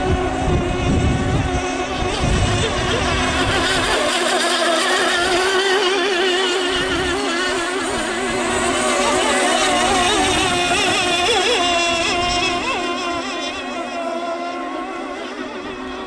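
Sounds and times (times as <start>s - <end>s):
model boat engines whining: 0.0s - 16.0s.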